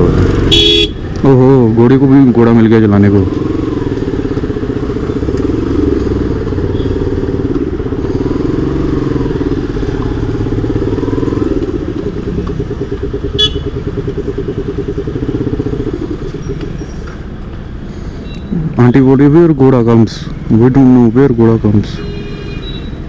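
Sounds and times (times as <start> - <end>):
motorcycle engine running: 0.0 - 18.3.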